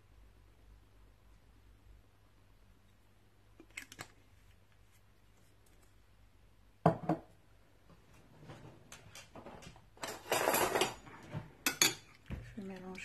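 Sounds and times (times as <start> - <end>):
bottle knocking on worktop: 6.8 - 7.3.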